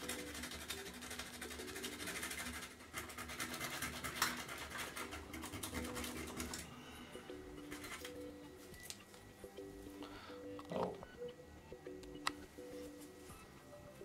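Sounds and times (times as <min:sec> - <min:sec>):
sandpaper scratching on metal: 0:00.3 - 0:06.5.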